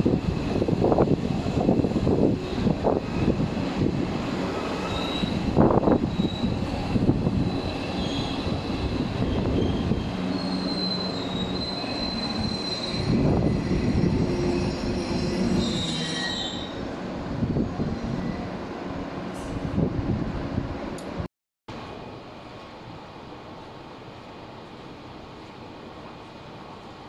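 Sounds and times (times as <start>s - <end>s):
train electric hum: 0.0s - 27.0s
high-pitched wheel squeal: 4.8s - 16.8s.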